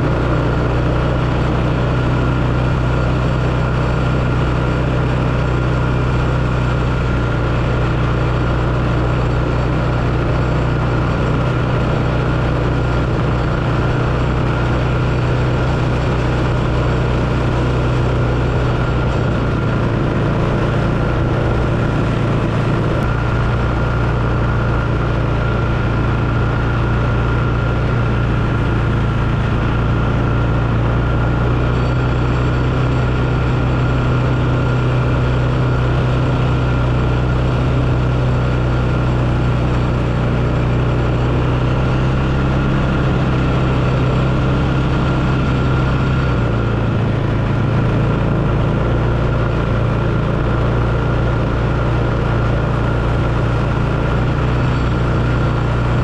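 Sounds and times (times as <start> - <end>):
atv engine running: 0.0 - 56.0.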